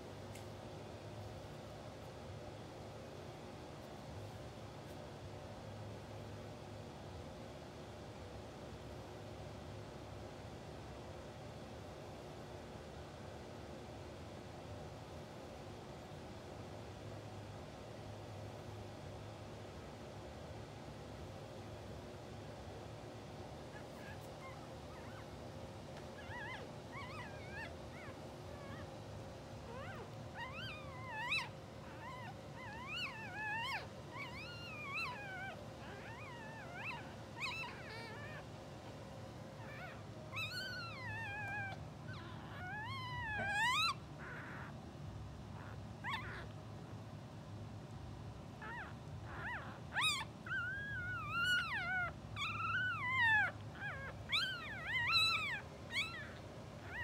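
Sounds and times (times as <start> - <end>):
puppies squeaking and whimpering: 23.8 - 25.2, 26.2 - 29.0, 29.6 - 38.4, 39.6 - 44.7, 45.6 - 46.5, 48.6 - 57.0.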